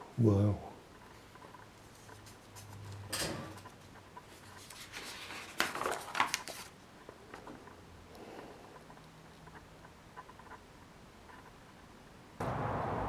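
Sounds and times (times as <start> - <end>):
paper pages rustling: 1.8 - 3.0, 3.6 - 7.5.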